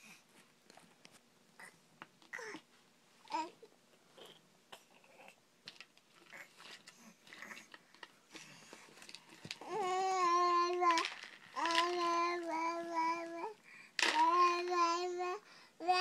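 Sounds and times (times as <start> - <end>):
toddler babbling: 9.6 - 16.0.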